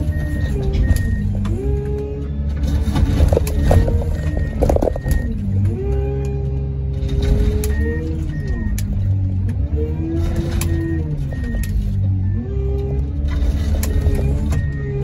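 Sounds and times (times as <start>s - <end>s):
hydraulic whine: 0.0s - 15.0s
low engine drone: 0.0s - 15.0s
metal crackling: 2.6s - 5.4s.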